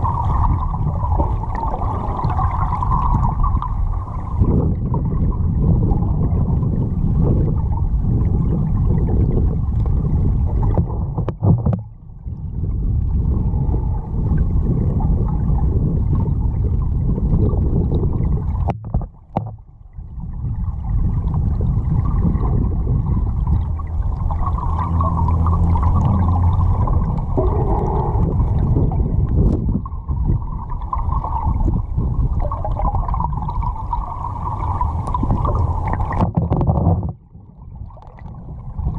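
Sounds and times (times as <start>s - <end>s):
muffled underwater river rumble: 0.0s - 38.9s
faint low hum: 18.0s - 38.9s.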